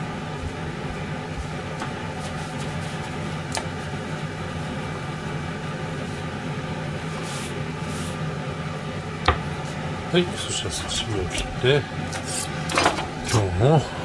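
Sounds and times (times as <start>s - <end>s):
mechanical hum: 0.0s - 14.0s
paper towel rubbing wooden board: 0.1s - 8.2s.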